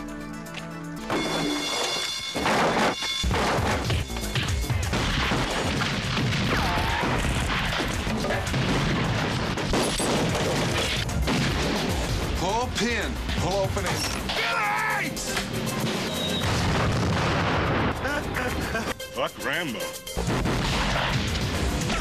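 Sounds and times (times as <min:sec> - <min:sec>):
film score music: 0:00.0 - 0:22.0
rapid gunshots: 0:02.4 - 0:12.6, 0:20.2 - 0:22.0.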